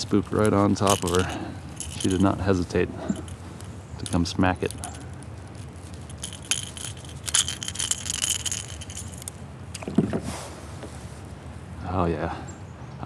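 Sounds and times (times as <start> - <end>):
metal hooks clinking and jingling: 0.0 - 9.4.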